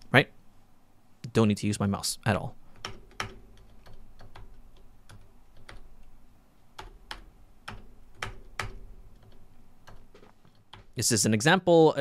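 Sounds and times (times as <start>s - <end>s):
keyboard typing clicks: 2.8s - 5.9s, 6.8s - 11.0s.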